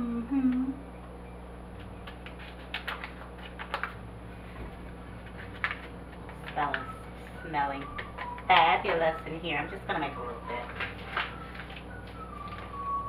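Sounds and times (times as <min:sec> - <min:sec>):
paper packet crinkling: 0:02.0 - 0:04.0, 0:04.8 - 0:07.0, 0:10.4 - 0:12.9.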